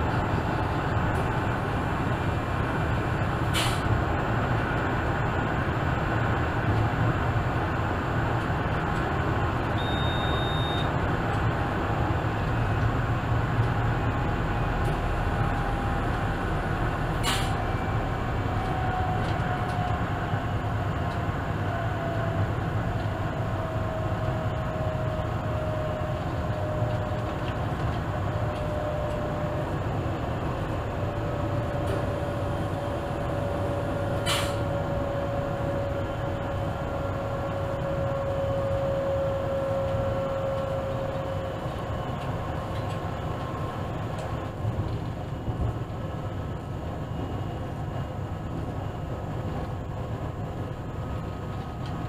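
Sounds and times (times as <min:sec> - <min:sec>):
train running gear rumble: 0:00.0 - 0:52.0
short high beep: 0:09.8 - 0:10.9.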